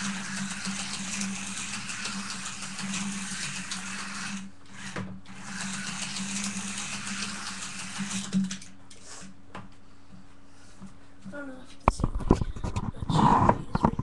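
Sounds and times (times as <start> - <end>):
slot car motors whirring: 0.0 - 8.6.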